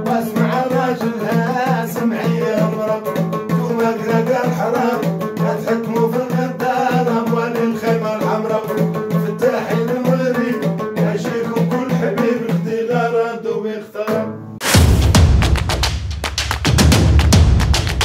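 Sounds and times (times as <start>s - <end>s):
man singing folk song: 0.0s - 14.4s.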